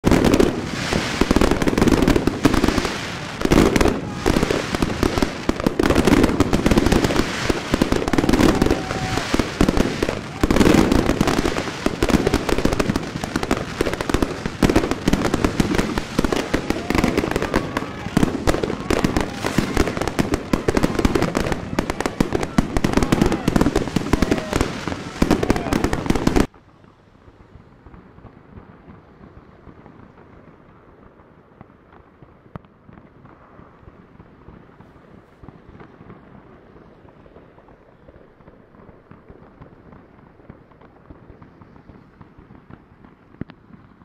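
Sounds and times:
sharp firework bangs: 0.0 - 26.5
firecrackers crackling: 0.0 - 44.0.

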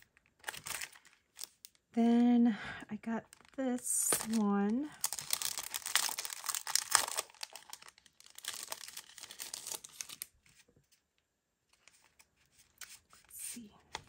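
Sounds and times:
packaging crinkling: 0.0 - 1.9, 3.3 - 10.6.

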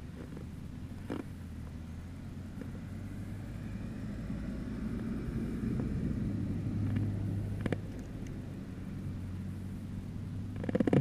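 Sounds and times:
pickup truck passing: 1.5 - 10.6.

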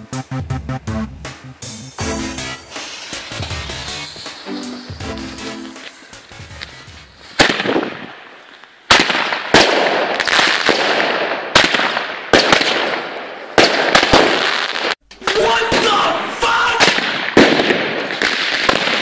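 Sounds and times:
fireworks battery bangs: 1.6 - 16.0, 16.8 - 19.0
fireworks crackling and hiss: 2.0 - 15.0, 16.8 - 19.0.

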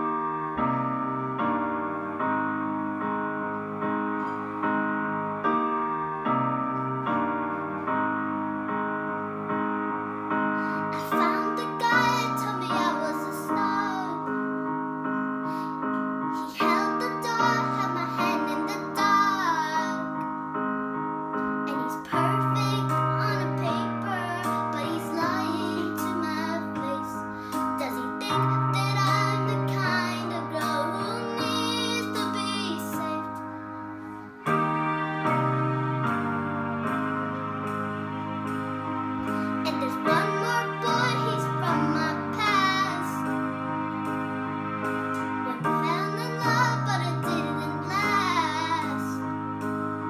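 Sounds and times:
piano chords: 0.0 - 50.0
girl singing: 10.6 - 14.6, 15.5 - 20.3, 21.6 - 33.6, 39.3 - 43.4, 45.4 - 49.3.

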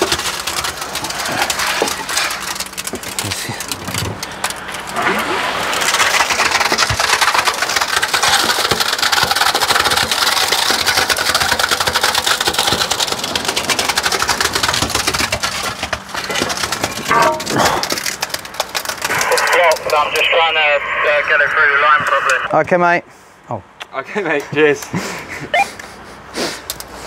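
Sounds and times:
wet concrete pouring: 0.0 - 20.0.

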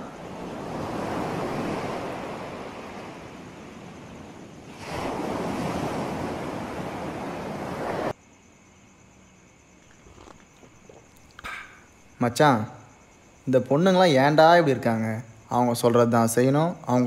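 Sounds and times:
ocean surf washing on beach: 0.0 - 8.2.

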